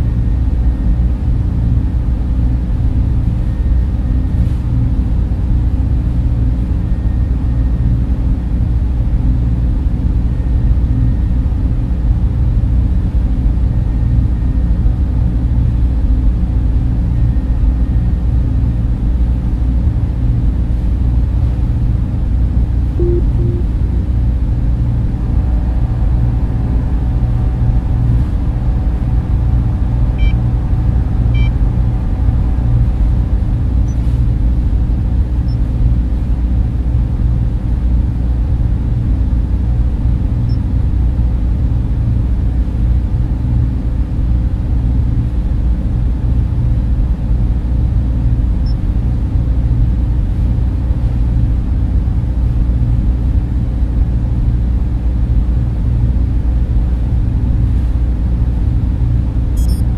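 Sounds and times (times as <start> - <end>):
low ambient hum: 0.0 - 59.9
high electronic blips: 23.0 - 23.8, 59.6 - 59.8.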